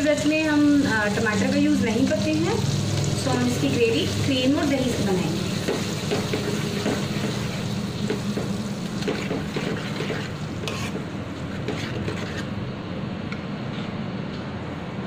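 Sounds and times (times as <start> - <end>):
spoon stirring gravy in a pan: 9.0 - 12.5
spoon scraping a pan: 9.0 - 12.6.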